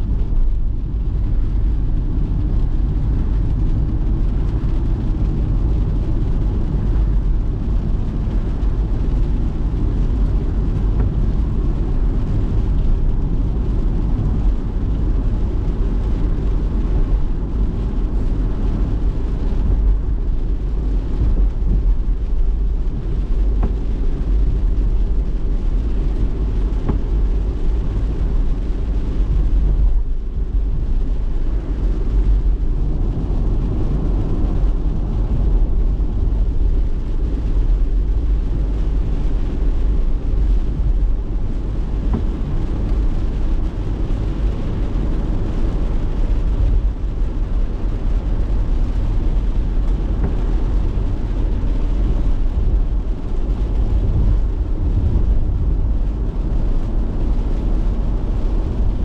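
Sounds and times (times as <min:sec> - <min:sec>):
car tyre and road noise: 0:00.0 - 0:59.0.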